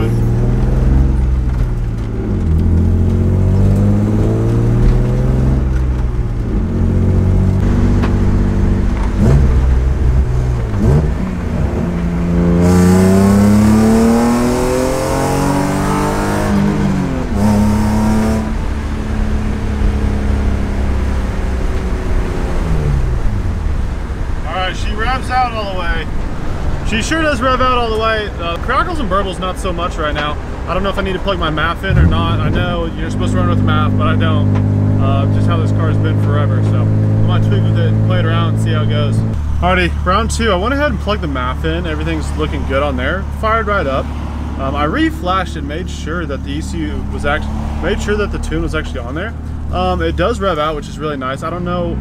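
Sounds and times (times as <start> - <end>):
car engine accelerating through gears: 0.0 - 24.4, 31.5 - 40.0, 46.1 - 52.0
exhaust crackles: 0.0 - 52.0.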